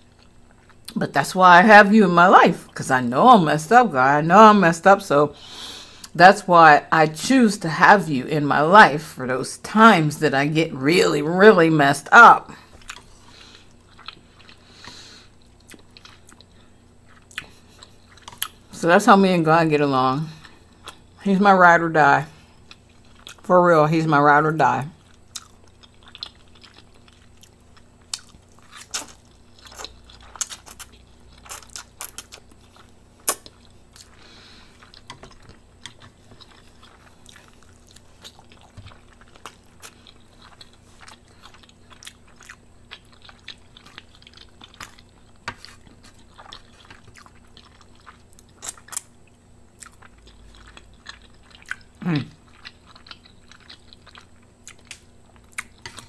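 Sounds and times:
chewing noodles: 12.6s - 18.7s, 22.4s - 23.4s, 25.0s - 56.0s.

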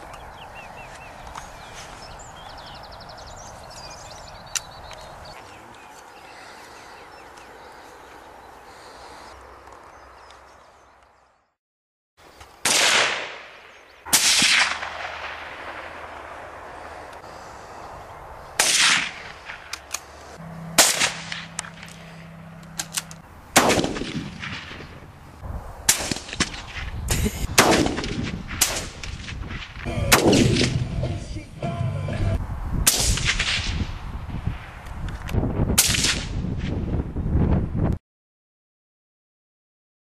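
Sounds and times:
rifle shots with echo: 12.6s - 16.5s, 18.6s - 19.7s, 20.8s - 22.0s, 23.6s - 24.9s, 27.6s - 29.4s, 30.1s - 30.8s.

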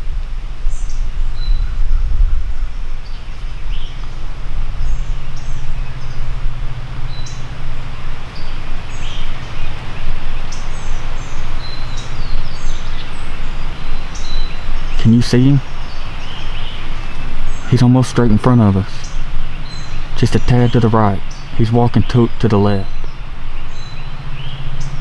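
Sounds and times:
songbirds chirping: 0.0s - 25.0s
steady low rumble: 0.0s - 25.0s.

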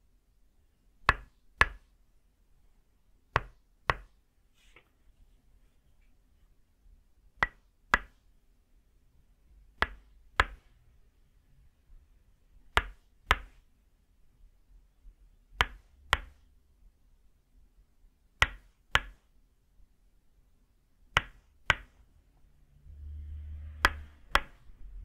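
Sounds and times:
wooden mallet striking wooden stake: 23.8s - 24.6s.

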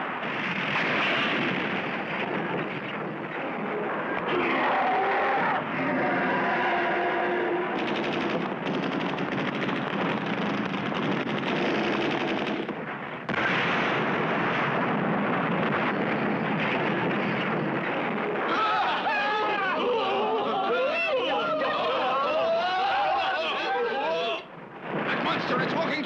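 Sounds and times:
cartoon automatic rifle fire: 0.2s - 3.5s, 7.8s - 19.0s.

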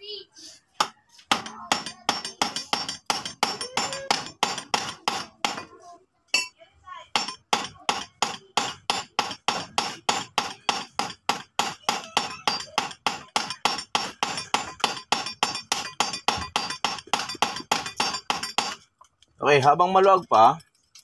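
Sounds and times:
hammer clinking on metal: 1.3s - 5.6s, 6.3s - 6.6s, 7.2s - 18.8s.

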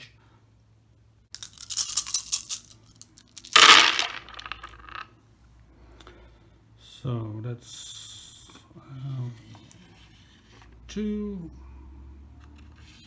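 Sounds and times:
dice clattering into wooden tray: 1.4s - 5.1s
dice clicking as they roll: 1.4s - 5.1s
dice rattling: 1.4s - 5.1s.

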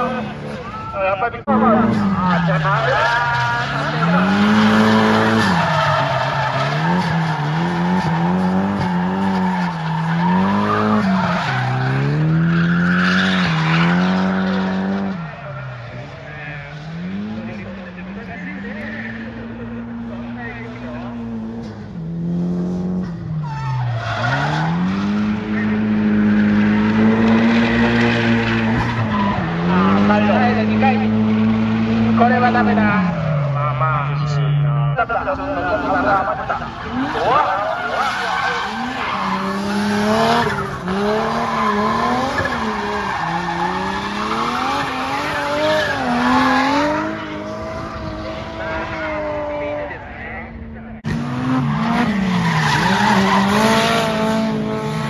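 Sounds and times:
car engine revving: 0.0s - 55.0s
tyres squealing: 1.8s - 16.7s, 35.6s - 47.5s, 51.7s - 54.8s.

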